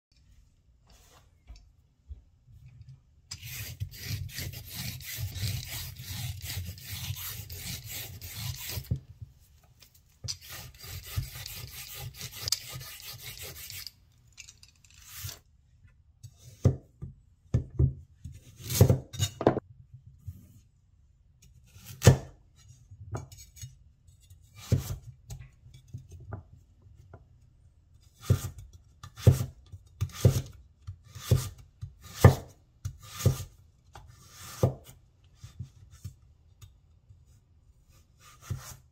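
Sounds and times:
carrot skin scraping: 3.3s - 8.9s, 10.3s - 14.0s.

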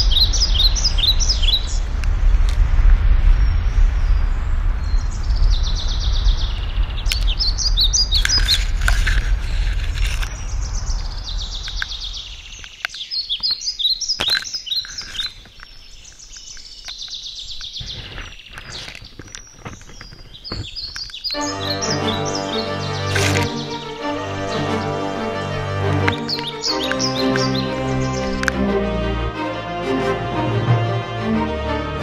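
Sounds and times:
small birds chirping and trilling: 0.0s - 2.0s, 3.2s - 28.6s
low rumble: 0.0s - 12.5s
branches brushing past: 8.1s - 12.6s, 17.7s - 28.8s
footsteps snapping twigs: 12.6s - 21.4s, 22.2s - 23.8s, 25.9s - 28.6s.

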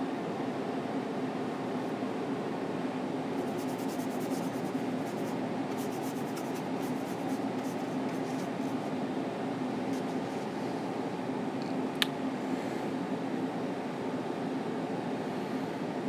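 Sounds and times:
light scratching ticks: 3.4s - 8.8s.

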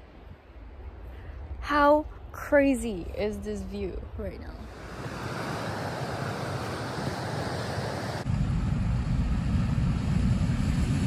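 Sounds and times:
ocean surf: 4.6s - 8.3s.

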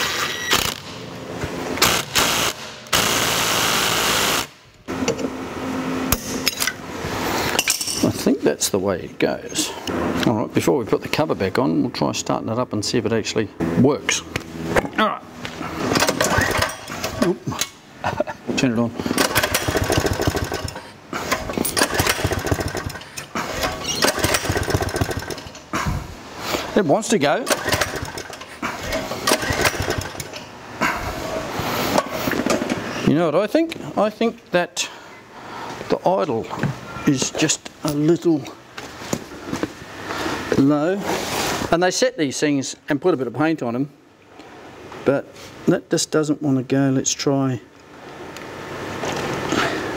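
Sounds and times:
hand tools clinking on metal: 7.5s - 8.2s
impact driver running on a bolt: 19.1s - 20.8s, 21.6s - 23.1s, 24.0s - 25.6s
recoil starter pull: 19.1s - 25.7s, 27.4s - 30.5s.

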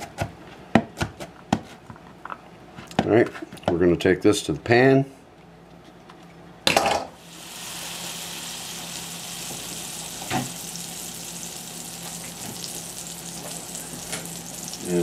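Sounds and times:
butter sizzling in a skillet: 7.2s - 15.0s.

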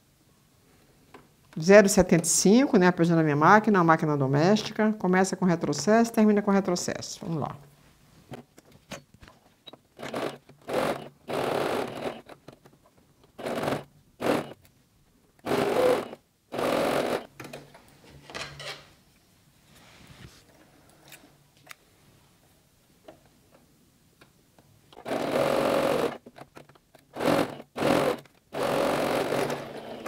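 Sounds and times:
sewing machine stitching: 10.0s - 12.6s, 13.4s - 14.6s, 15.4s - 17.3s, 25.0s - 26.3s, 27.1s - 30.0s.

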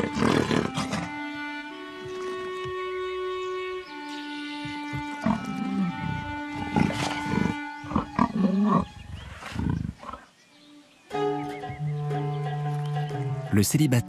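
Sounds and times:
leopards growling: 0.0s - 1.3s, 4.6s - 10.3s
background music with strings: 0.0s - 14.0s.

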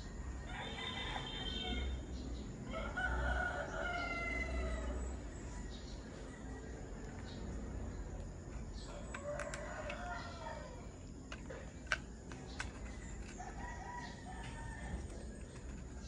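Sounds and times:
sharp clicks: 11.3s - 13.4s.

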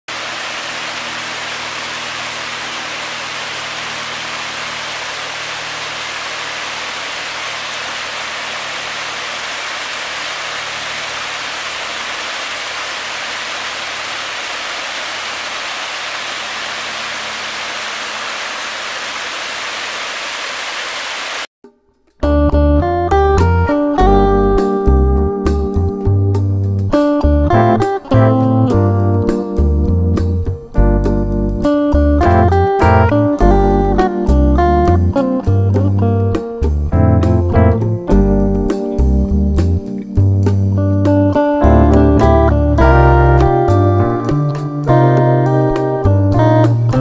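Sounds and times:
fountain water rushing: 0.1s - 21.5s.

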